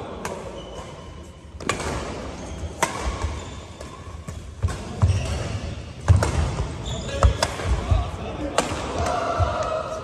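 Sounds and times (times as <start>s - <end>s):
racket striking shuttlecock: 2.8s - 5.5s.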